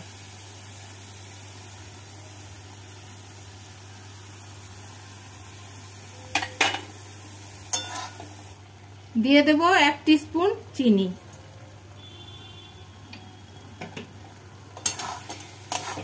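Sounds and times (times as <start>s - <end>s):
food sizzling in a wok: 0.0s - 16.0s.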